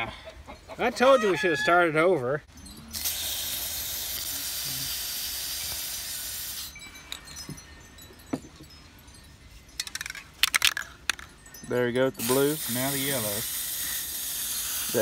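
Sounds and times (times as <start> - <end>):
spray can hissing: 2.9 - 6.7, 12.2 - 15.0.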